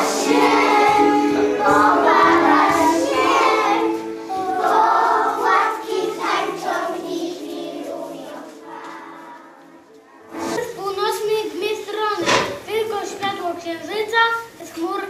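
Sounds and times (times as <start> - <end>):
children singing: 0.0 - 10.6
instrumental accompaniment: 0.0 - 11.5.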